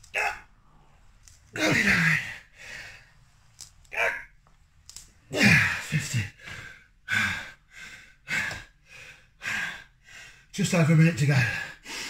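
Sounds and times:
man grunting with effort: 0:00.1 - 0:00.5, 0:01.6 - 0:02.4, 0:05.3 - 0:06.1
man breathing hard and gasping: 0:01.6 - 0:03.2, 0:05.3 - 0:10.5, 0:11.4 - 0:12.0.

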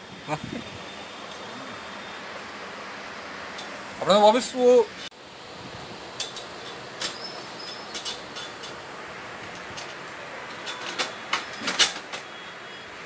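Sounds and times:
steady hiss: 0:00.0 - 0:13.0.

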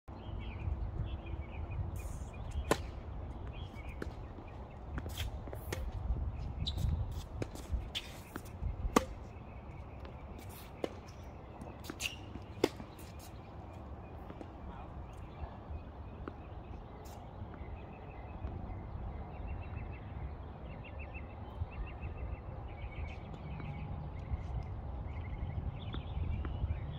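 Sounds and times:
tennis balls struck by rackets: 0:02.5 - 0:06.0, 0:07.1 - 0:14.6.

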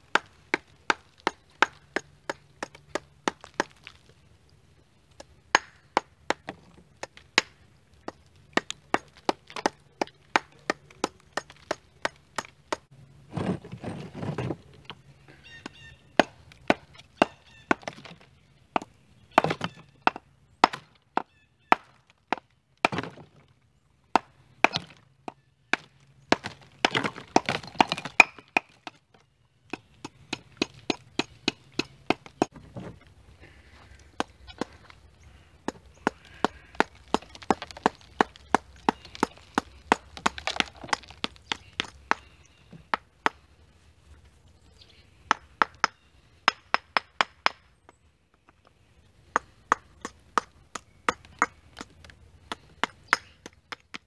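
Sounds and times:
hammer chipping mortar off brick: 0:00.1 - 0:03.9, 0:18.8 - 0:23.2, 0:24.2 - 0:25.0, 0:25.7 - 0:29.0, 0:35.7 - 0:43.4, 0:49.3 - 0:54.0.

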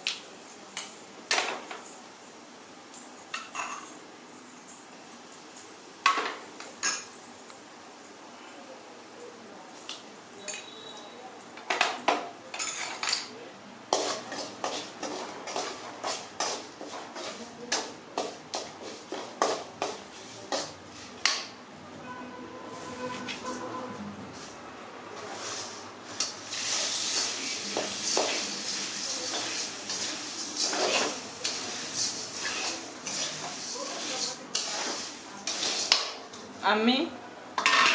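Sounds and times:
metal spoon scraping a pan: 0:13.9 - 0:21.2, 0:22.6 - 0:24.5, 0:25.4 - 0:36.2.

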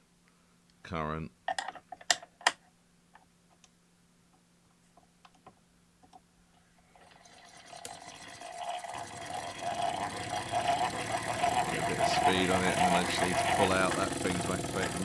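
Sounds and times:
hand-cranked gears whirring: 0:07.0 - 0:15.0.

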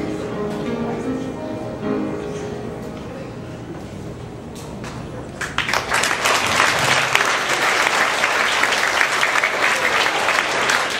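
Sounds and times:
children applauding: 0:05.4 - 0:10.9.

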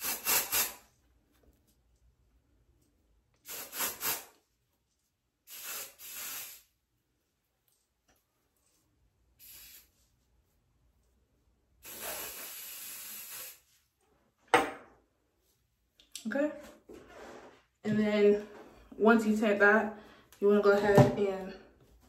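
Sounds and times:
aerosol spray hissing: 0:00.0 - 0:00.9, 0:03.4 - 0:04.3, 0:05.5 - 0:06.8, 0:09.4 - 0:10.0, 0:11.8 - 0:13.7.

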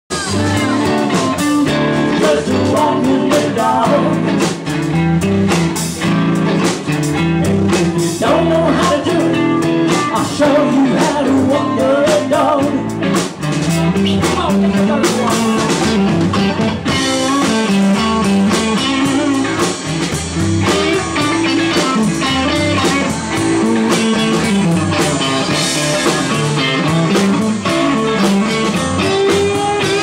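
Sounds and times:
live rock band playing: 0:00.1 - 0:30.0.

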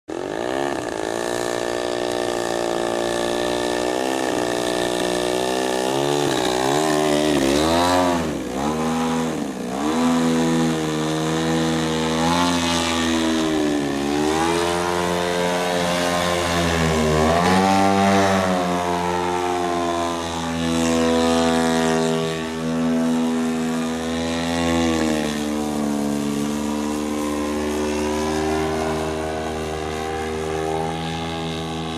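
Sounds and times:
model airplane engine: 0:00.1 - 0:31.9.

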